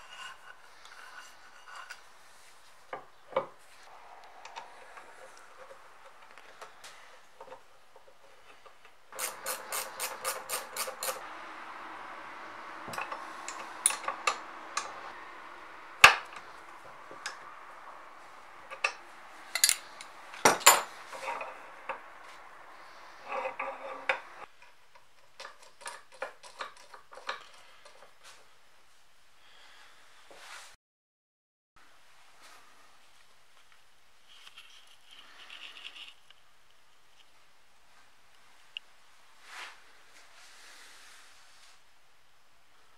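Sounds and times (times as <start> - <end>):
steady hum: 9.1 - 24.5
metal parts clinking: 18.7 - 21.5.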